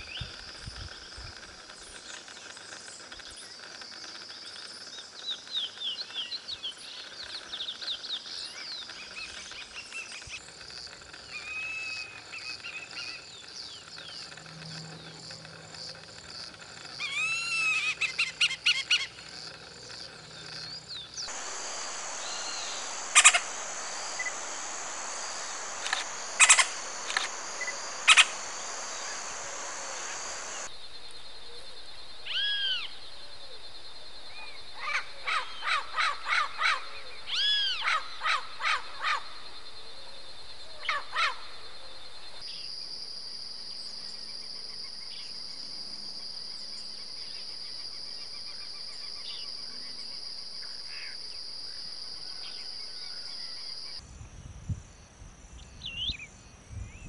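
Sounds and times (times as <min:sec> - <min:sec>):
finch singing whistled notes: 0:21.2 - 0:30.7
steady high hiss: 0:21.2 - 0:34.8
hawk calling: 0:21.3 - 0:30.7
parrot calling: 0:21.3 - 0:30.7.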